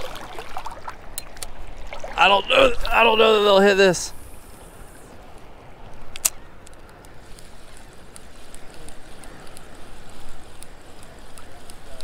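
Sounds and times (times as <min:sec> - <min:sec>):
shallow surf water: 0:00.0 - 0:12.0
wind: 0:00.0 - 0:12.0
reel ticking: 0:03.1 - 0:12.0
fishing reel click: 0:06.0 - 0:12.0.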